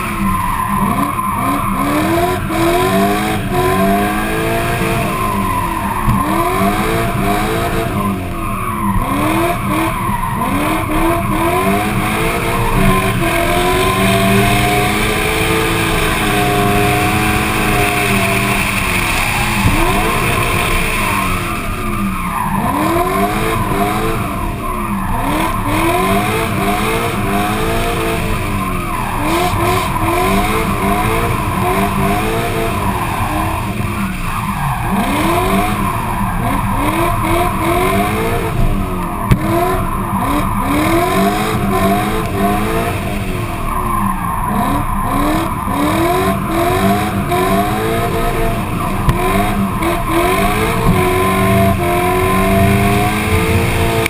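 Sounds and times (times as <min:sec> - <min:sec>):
race car engine revving: 0:00.0 - 0:54.0
tyres skidding and squealing: 0:00.0 - 0:54.0.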